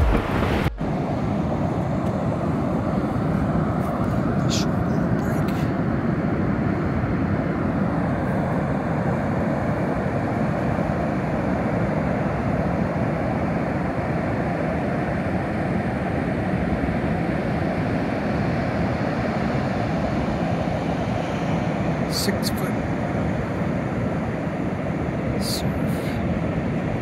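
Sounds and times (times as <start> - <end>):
ocean surf breaking on sand: 0.0 - 5.9.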